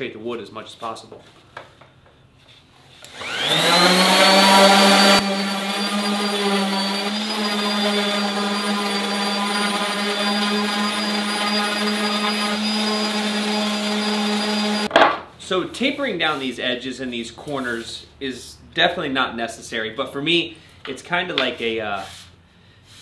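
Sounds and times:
orbital sander on wood: 3.1 - 14.9.

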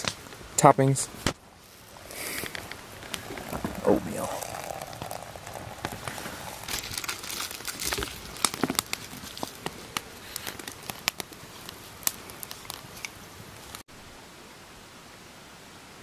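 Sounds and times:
food packaging crinkling: 1.6 - 13.8.

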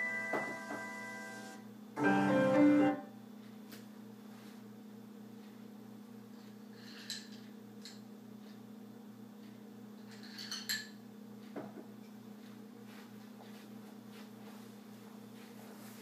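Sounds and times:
piano notes: 0.0 - 3.1.

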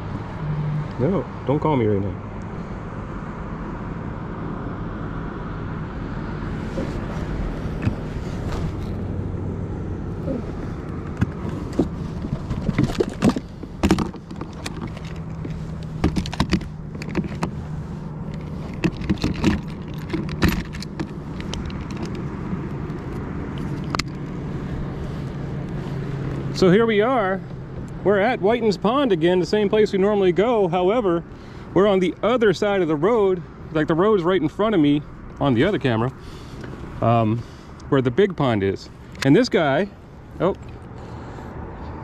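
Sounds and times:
road traffic hum: 0.0 - 42.0
fishing gear clicks and knocks: 6.8 - 9.1, 10.2 - 24.5.

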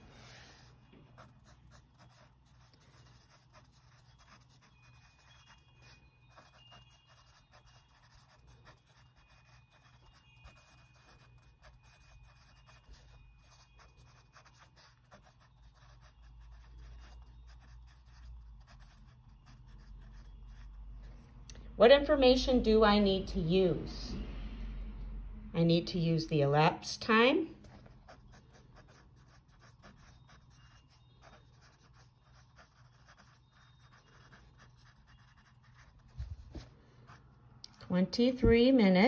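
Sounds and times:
pen scratching on paper: 0.0 - 20.8, 27.6 - 37.2.

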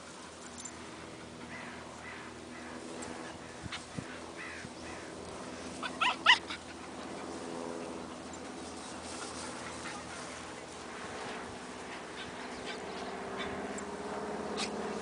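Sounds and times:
dog yipping: 5.8 - 6.6.

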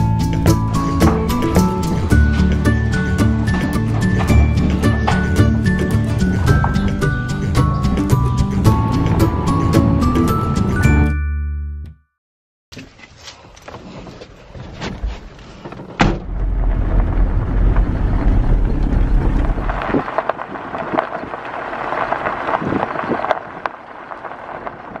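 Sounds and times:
gravel crunching under tyres: 0.0 - 10.5, 12.7 - 25.0
vehicle rumble from inside cabin: 16.1 - 20.5.

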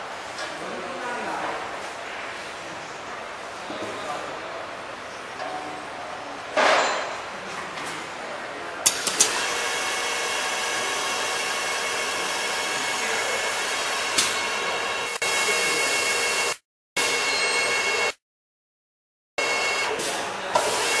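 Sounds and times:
machine whirring and whining: 8.9 - 18.2, 19.4 - 21.0.

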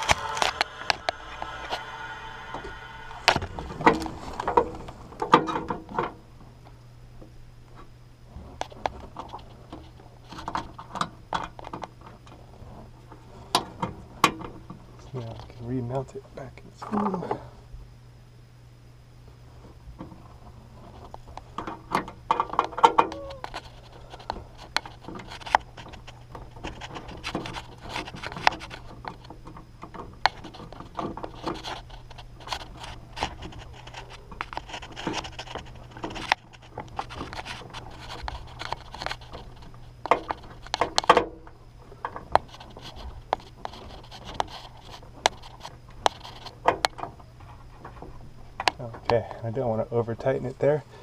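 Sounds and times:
low hum: 0.0 - 51.0
metal parts scraping and clicking: 20.8 - 29.4, 30.3 - 41.2, 42.0 - 46.9.

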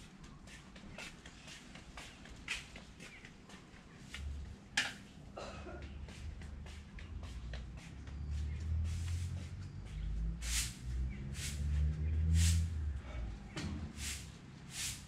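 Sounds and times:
short hissy bursts: 14.0 - 15.0.

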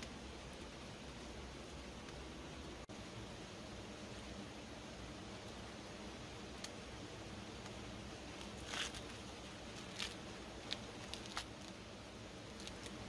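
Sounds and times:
faint steady hiss: 0.0 - 13.0
corn husks tearing: 8.2 - 13.0.

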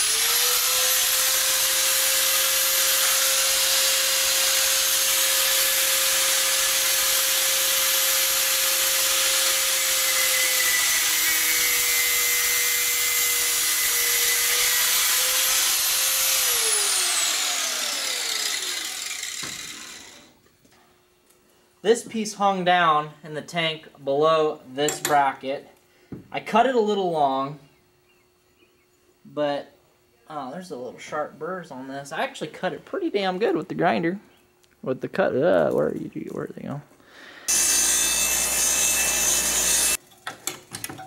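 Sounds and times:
angle grinder cutting metal: 0.0 - 20.4, 37.4 - 40.0.

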